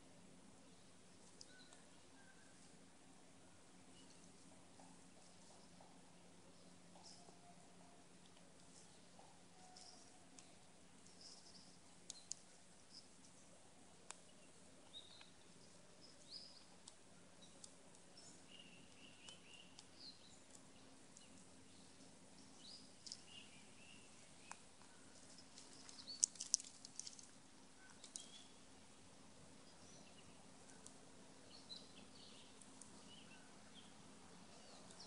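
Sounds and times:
low woodland background: 0.0 - 35.0
faint bird chirps: 0.6 - 2.8, 3.4 - 13.5, 14.1 - 28.8, 29.5 - 35.0
squirrel cracking and chewing seeds: 8.1 - 35.0.

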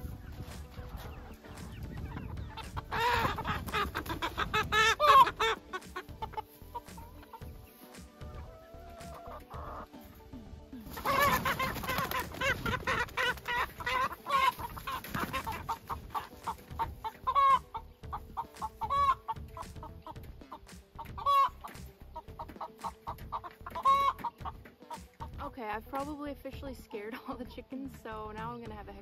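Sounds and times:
chickens squawking in alarm: 0.0 - 10.0, 10.9 - 25.2.

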